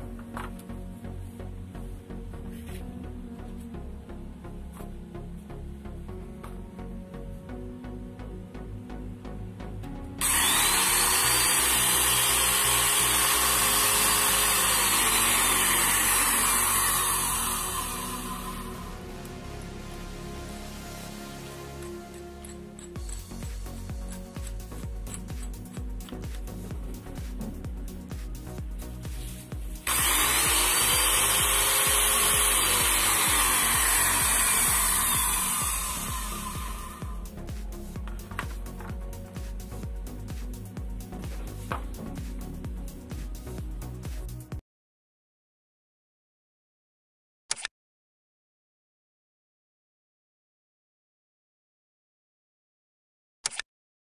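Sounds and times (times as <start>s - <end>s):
background music with steady beat: 0.0s - 44.6s
electric drill motor whining: 10.2s - 19.0s, 21.8s - 26.2s, 29.8s - 37.3s.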